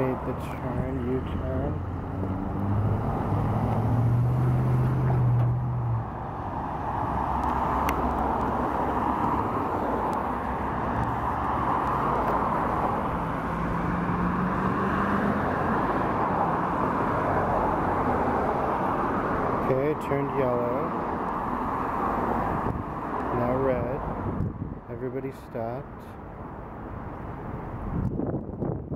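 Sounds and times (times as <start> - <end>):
car engine hum: 0.0 - 24.8
tyres rushing on road: 0.0 - 28.9.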